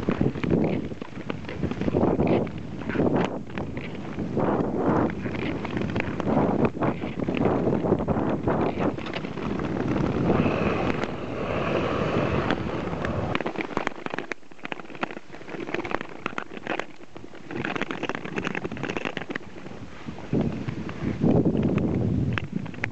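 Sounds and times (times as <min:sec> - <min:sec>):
skates scraping on ice: 0:00.0 - 0:22.9
wind rumble on microphone: 0:00.0 - 0:22.9
poles tapping ice: 0:12.4 - 0:19.7.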